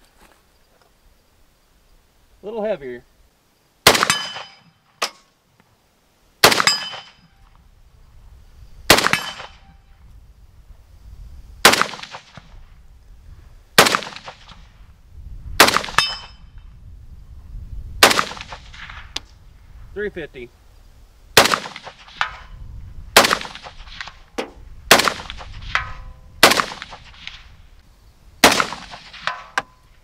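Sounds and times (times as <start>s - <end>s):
rifle shots with echo: 3.8s - 4.7s, 6.4s - 7.2s, 8.9s - 9.7s, 11.6s - 12.5s, 13.8s - 14.6s, 15.6s - 16.3s, 18.0s - 19.1s, 21.4s - 22.5s, 23.2s - 27.4s, 28.4s - 29.6s.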